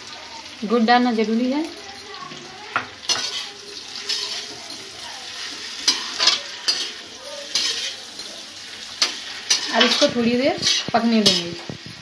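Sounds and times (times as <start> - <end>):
frying sizzle: 0.0 - 12.0
spoon scraping and clinking pan: 3.0 - 12.0.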